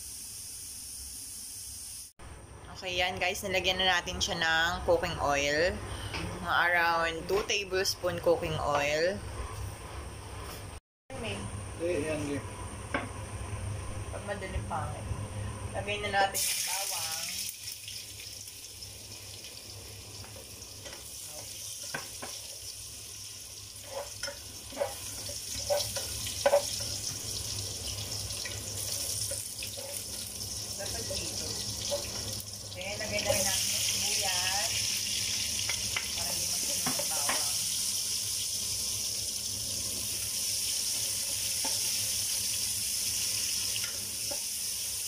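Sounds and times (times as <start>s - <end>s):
garlic sizzling in oil: 0.0s - 2.1s, 16.2s - 45.0s
spoon scraping against pot: 23.8s - 27.0s, 28.4s - 30.2s.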